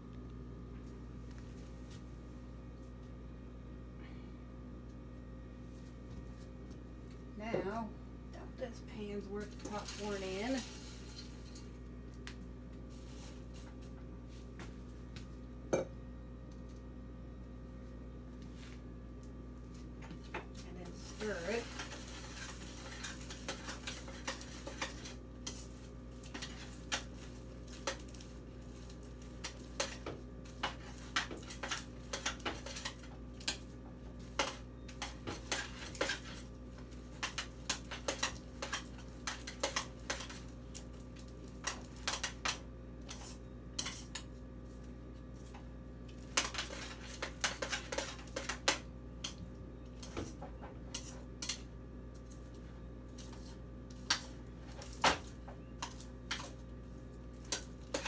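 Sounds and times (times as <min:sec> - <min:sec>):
steady low hum: 0:00.0 - 0:58.0
utensil scraping a pan: 0:20.9 - 0:27.1, 0:34.4 - 0:36.4, 0:43.1 - 0:44.2, 0:46.4 - 0:48.8.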